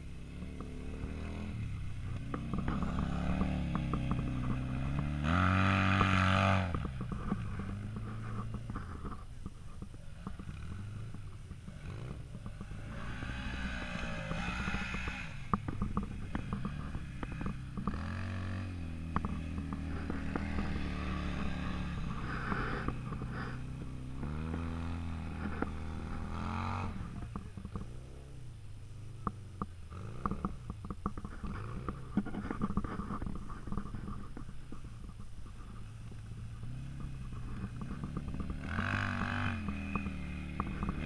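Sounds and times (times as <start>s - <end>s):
off-road vehicle engines revving: 0.0s - 41.0s.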